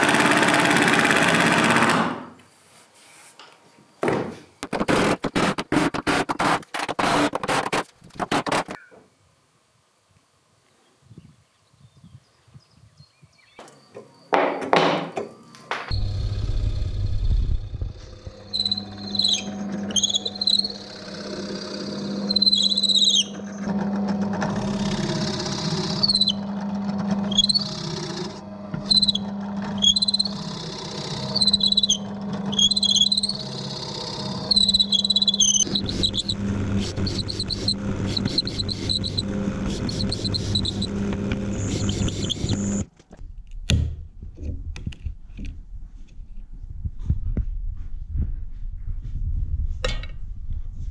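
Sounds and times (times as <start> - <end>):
drill press motor humming: 15.9 - 42.9
plug cutter squealing in wood: 18.0 - 42.9.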